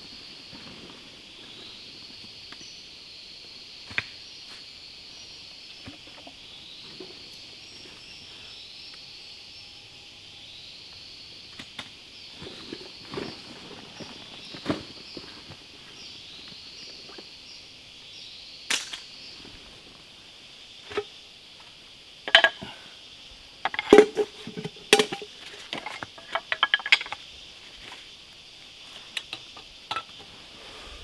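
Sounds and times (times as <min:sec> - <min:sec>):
tools clacking and knocking: 0:22.3 - 0:22.6, 0:23.6 - 0:25.2, 0:25.8 - 0:27.2.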